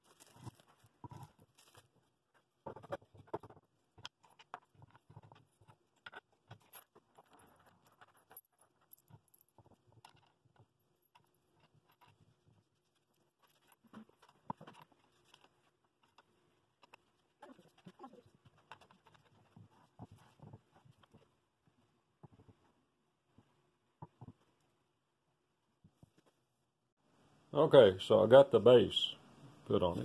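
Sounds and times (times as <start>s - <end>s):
wooden blocks and nuts clicking: 0.1s - 21.4s.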